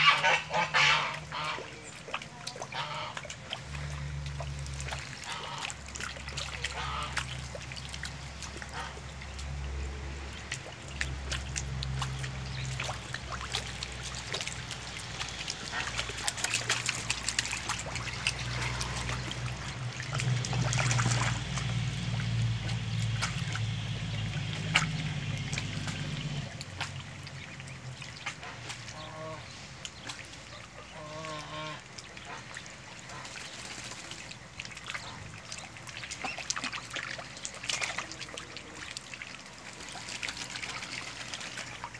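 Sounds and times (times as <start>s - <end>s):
water trickling and splashing: 0.0s - 41.9s
low rumble: 7.0s - 28.0s.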